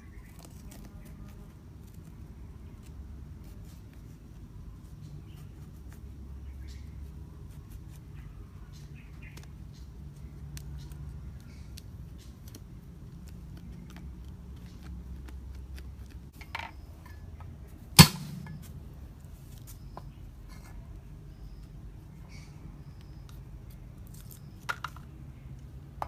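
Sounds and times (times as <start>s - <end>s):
low steady rumble: 9.8s - 19.4s
sharp ringing knock: 18.0s - 18.7s.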